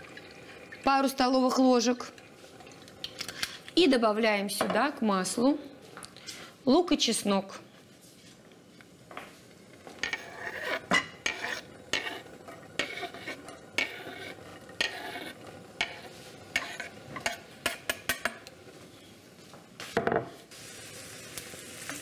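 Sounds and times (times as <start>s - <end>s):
onion sizzling in oil: 0.0s - 3.9s, 9.9s - 18.4s, 20.3s - 22.0s
utensil scraping a frying pan: 9.9s - 18.4s.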